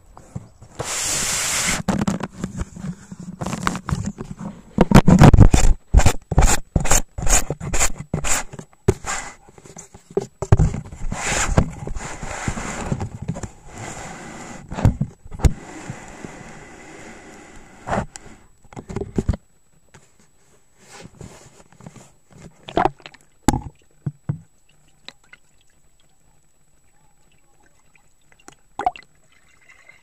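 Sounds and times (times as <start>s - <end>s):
rubbing scrape on housing: 0.7s - 9.9s, 10.8s - 18.5s.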